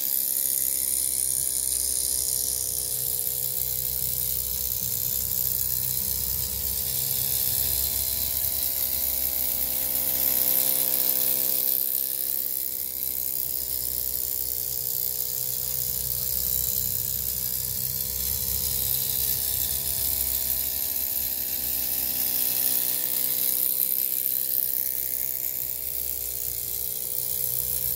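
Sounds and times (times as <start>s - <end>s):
steam engine exhaust beat: 3.8s - 10.2s
steam hissing: 4.0s - 12.6s, 14.1s - 27.6s.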